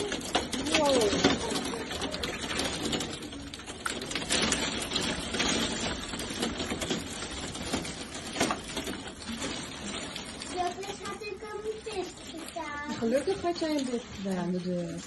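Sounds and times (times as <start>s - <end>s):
heavy rain and hail pelting: 0.0s - 15.0s.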